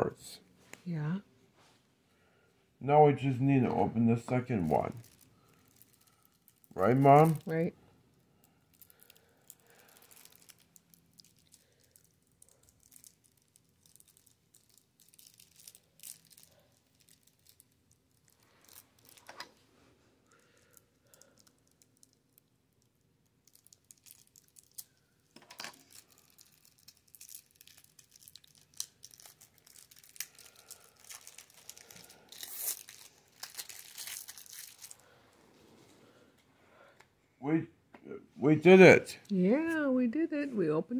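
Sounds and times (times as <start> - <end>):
plastic wrap crinkling and tearing: 4.2 - 7.7, 8.4 - 19.6, 20.2 - 35.2.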